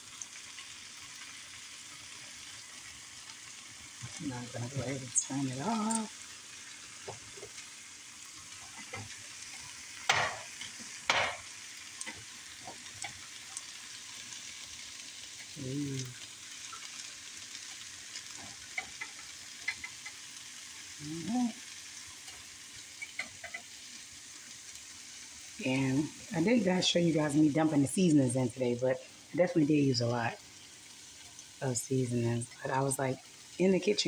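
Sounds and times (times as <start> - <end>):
broccoli sizzling in a frying pan: 0.0 - 34.0
tongs clattering against pan: 8.6 - 13.6, 18.4 - 20.3, 22.2 - 23.8
tongs clicking: 18.7 - 20.2, 23.0 - 23.7.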